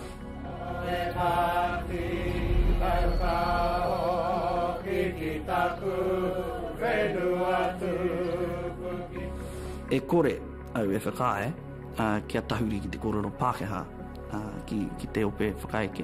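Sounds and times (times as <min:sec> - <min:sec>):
group of men chanting: 0:00.4 - 0:09.4.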